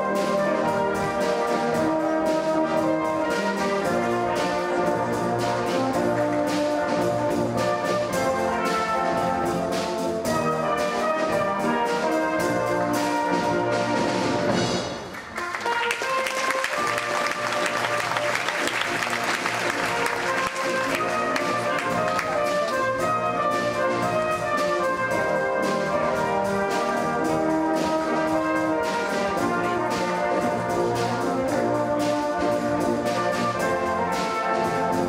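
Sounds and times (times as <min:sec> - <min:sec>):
orchestral music with brass: 0:00.0 - 0:35.0
applause: 0:15.1 - 0:22.8.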